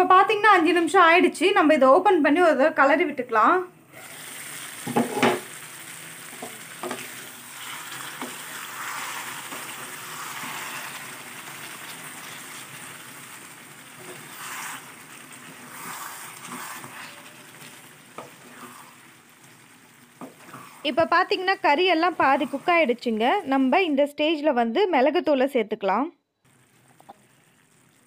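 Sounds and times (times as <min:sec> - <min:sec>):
gravy sizzling and bubbling: 0:03.9 - 0:24.1, 0:26.4 - 0:28.0.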